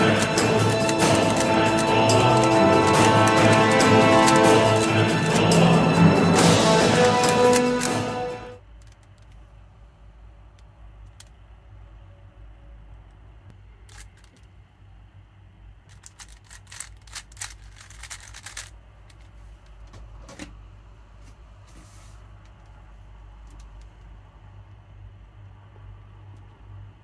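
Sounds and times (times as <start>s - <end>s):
steady low hum: 0.0s - 27.0s
puzzle cube layers clicking: 13.9s - 14.5s, 15.9s - 18.7s.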